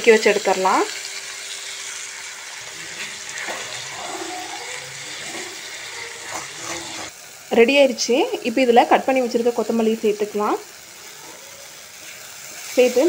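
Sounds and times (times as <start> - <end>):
food sizzling in pan: 0.0 - 13.0
wooden spatula stirring: 2.8 - 7.1.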